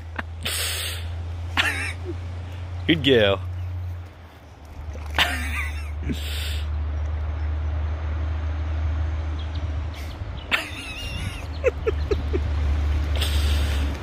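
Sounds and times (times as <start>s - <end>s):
steady low rumble: 0.0s - 14.0s
dog wading in river: 3.5s - 7.7s.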